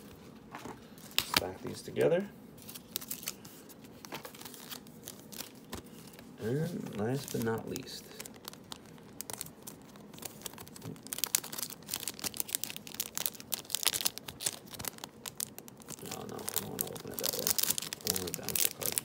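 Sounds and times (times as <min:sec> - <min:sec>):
foil pack tearing and crinkling: 0:06.7 - 0:19.0.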